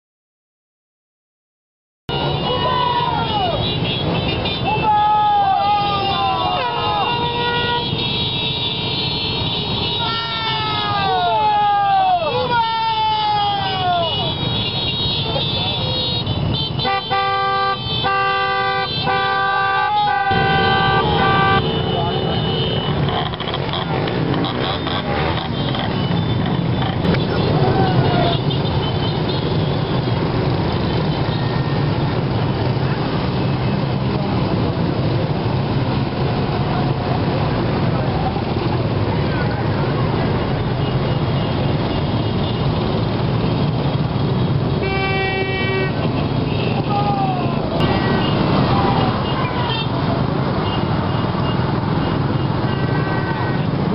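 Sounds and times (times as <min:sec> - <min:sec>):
vehicle horns honking: 0:02.1 - 0:04.9, 0:05.8 - 0:11.2, 0:14.0 - 0:32.7, 0:39.2 - 0:53.9
motorcycle engines rumbling: 0:02.1 - 0:53.9
vehicle horn: 0:05.8 - 0:11.0, 0:14.0 - 0:23.5, 0:44.0 - 0:46.9, 0:52.3 - 0:53.9.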